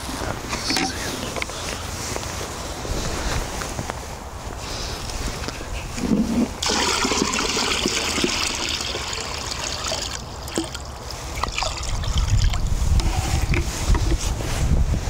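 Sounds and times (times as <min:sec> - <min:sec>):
water dripping: 0:06.6 - 0:12.6
water pouring into tub: 0:06.6 - 0:12.7.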